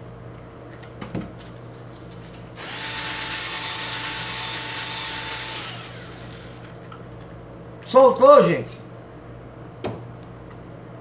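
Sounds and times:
drill click: 2.6s - 6.7s
drill motor spinning: 2.6s - 6.8s.

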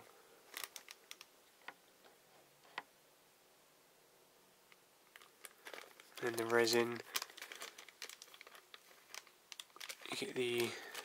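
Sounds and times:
plastic bag crinkling and clicks: 0.5s - 1.8s, 5.1s - 11.0s.

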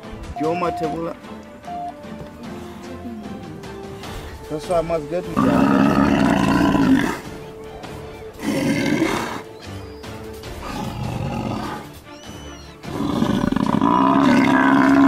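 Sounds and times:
lions growling: 5.3s - 9.8s, 10.4s - 15.0s
buffalo bellowing in distress: 5.4s - 7.3s, 8.4s - 9.5s, 10.6s - 12.0s, 12.6s - 15.0s.

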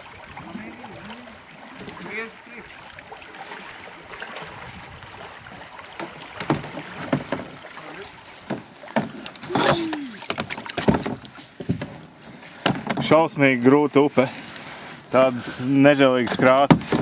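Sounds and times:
plastic kayaks knocking: 5.8s - 13.3s, 16.2s - 17.0s
background noise: 5.8s - 17.0s
short falling voice: 9.4s - 10.3s.

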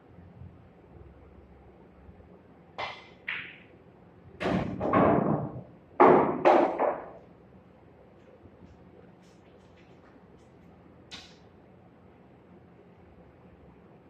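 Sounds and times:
cue striking ball: 2.8s - 3.7s, 4.4s - 7.2s
pool balls clacking: 2.8s - 3.7s, 4.4s - 7.3s
balls rolling and knocking: 4.5s - 7.2s.

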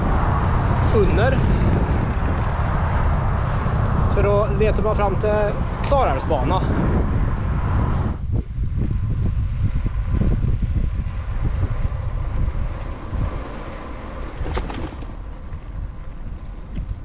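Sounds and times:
wind buffeting microphone: 0.0s - 17.0s
bicycle knocks: 14.3s - 15.8s.

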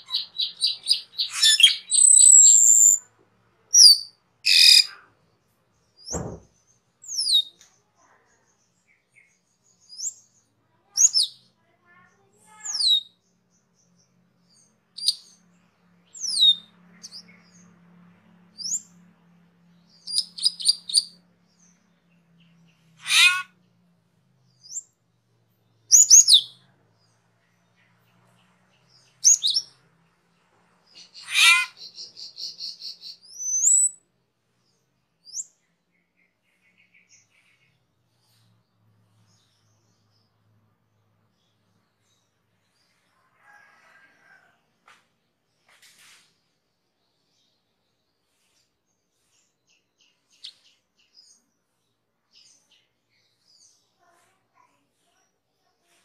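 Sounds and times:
bird chattering: 0.0s - 3.0s, 3.7s - 5.0s, 23.0s - 23.5s, 31.0s - 33.9s
starling whistled calls: 0.1s - 3.0s, 23.0s - 23.5s
low thump: 6.1s - 6.5s.

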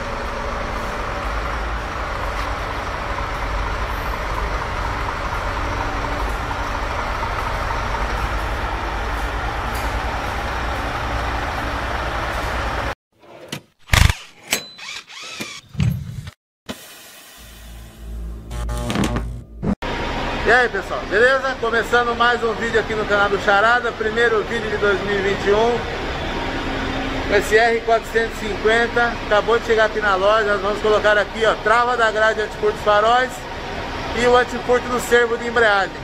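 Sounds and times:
truck engine rumbling: 0.0s - 13.0s, 17.4s - 36.0s.

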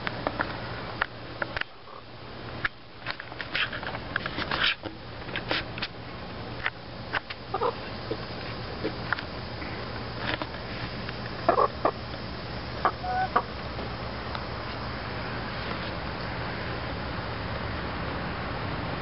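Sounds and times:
soft hen cluck: 7.5s - 8.2s, 11.5s - 12.0s, 12.8s - 13.6s.

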